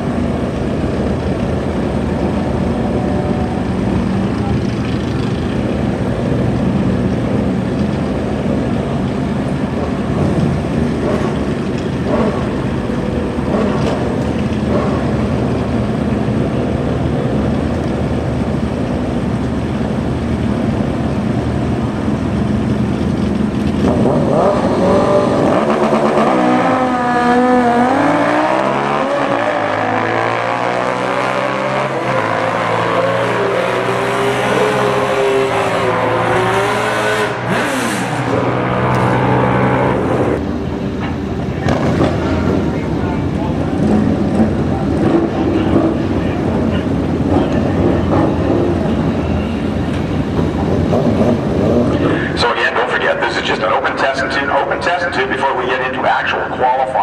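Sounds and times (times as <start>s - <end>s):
motorcycles accelerating hard: 0.0s - 40.5s, 41.4s - 53.0s
motorcycles idling: 0.2s - 24.2s, 40.1s - 55.2s.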